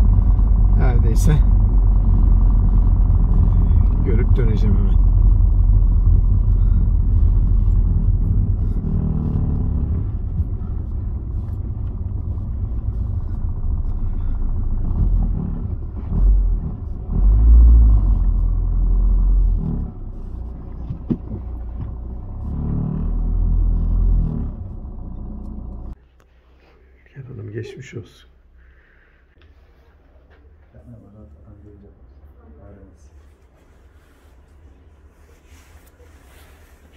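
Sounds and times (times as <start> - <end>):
car engine and road noise: 0.0 - 26.0.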